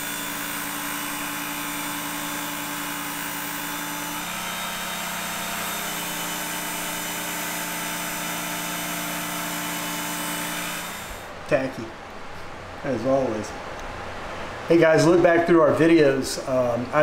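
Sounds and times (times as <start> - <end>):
small motor humming: 0.0 - 11.3.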